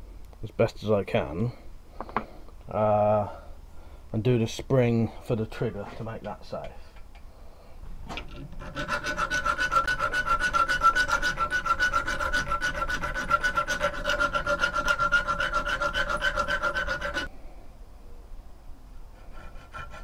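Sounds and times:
file rasping on metal: 0:08.5 - 0:17.3, 0:19.1 - 0:20.0.

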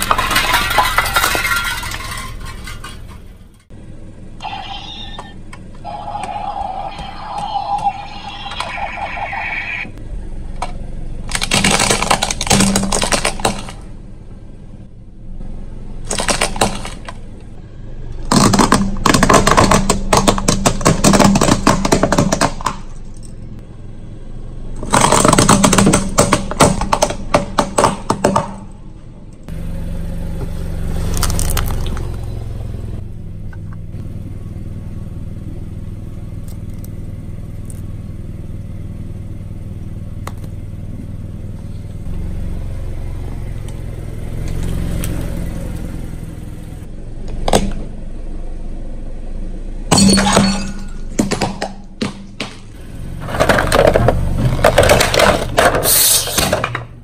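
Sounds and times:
objects crushed under car tyre: 0:00.0 - 0:03.7, 0:11.3 - 0:13.9, 0:16.0 - 0:17.2, 0:18.2 - 0:23.2, 0:24.8 - 0:28.7, 0:49.9 - 0:57.0
car engine running: 0:00.0 - 0:57.0.

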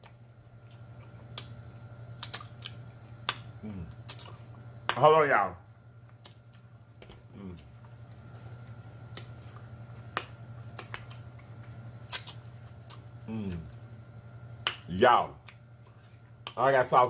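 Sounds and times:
steady low hum: 0:00.0 - 0:17.0
wet mouth clicks and lip smacks: 0:02.2 - 0:04.4, 0:10.7 - 0:13.0.

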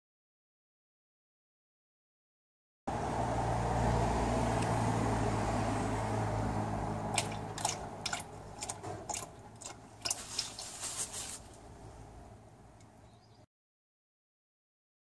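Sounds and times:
fluid spattering and ticking: 0:07.1 - 0:10.9.

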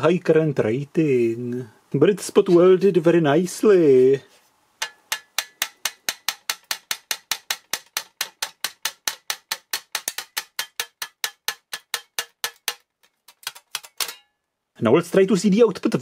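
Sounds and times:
sheet steel clicking when flexed: 0:04.8 - 0:14.3.

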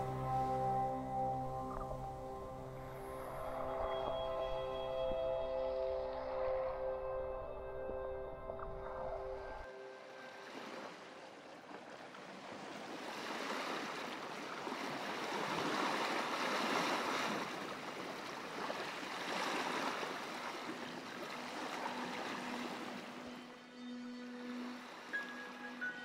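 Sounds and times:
sea waves washing onto beach: 0:10.3 - 0:23.3.

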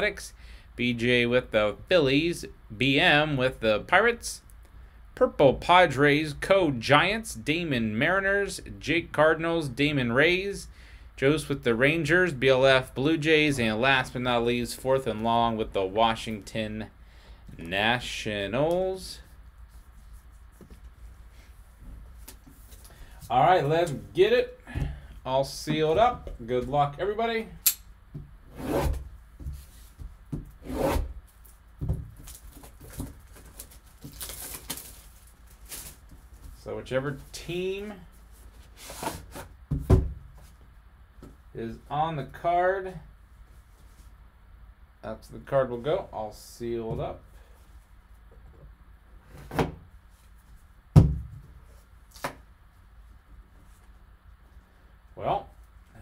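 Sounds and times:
plastic wrap rustling: 0:31.3 - 0:36.6
sharp knock on box: 0:51.0 - 0:51.4.

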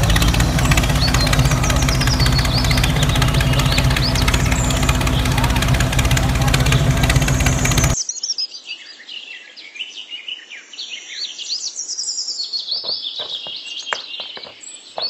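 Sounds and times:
loud engine-like running noise: 0:00.0 - 0:08.0
small birds chirping: 0:00.0 - 0:15.0.

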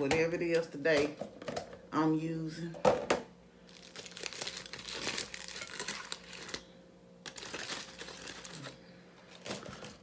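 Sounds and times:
aluminium foil crinkling: 0:03.7 - 0:10.0.

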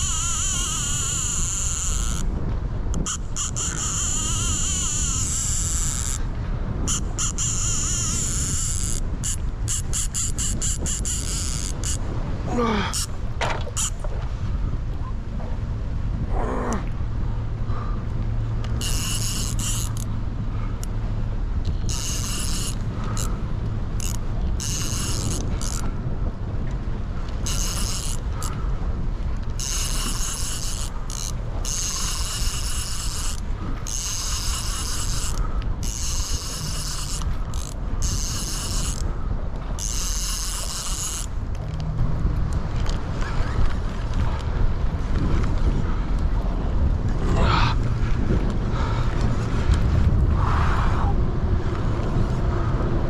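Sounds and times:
fishing reel drag buzzing: 0:00.0 - 0:02.3, 0:02.9 - 0:14.0, 0:18.6 - 0:20.9, 0:21.6 - 0:25.9, 0:27.3 - 0:28.7, 0:29.4 - 0:41.8.

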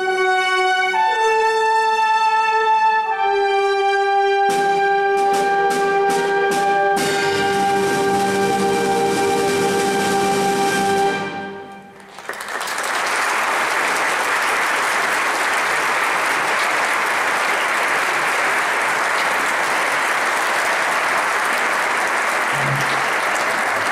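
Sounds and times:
audience applause: 0:11.9 - 0:23.9.

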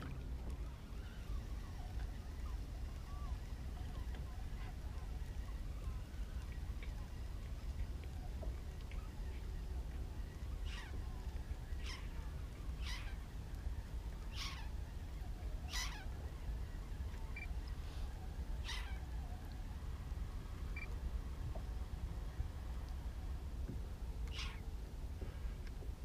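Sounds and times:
bird mewing calls: 0:10.2 - 0:19.6, 0:24.3 - 0:24.7.

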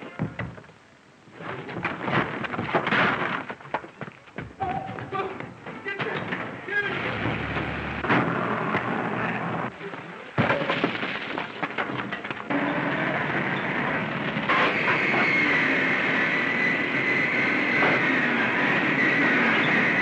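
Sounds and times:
mechanical knocks and clatter: 0:01.6 - 0:08.9
high steady whine: 0:04.4 - 0:10.3, 0:12.2 - 0:20.0
machinery noise: 0:04.4 - 0:20.0.

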